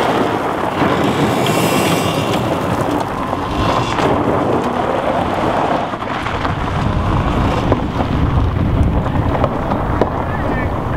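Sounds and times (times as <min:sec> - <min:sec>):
flying stones clicking: 0:00.0 - 0:05.1
low rumble: 0:00.0 - 0:10.9
tyres spinning on gravel: 0:00.0 - 0:10.9.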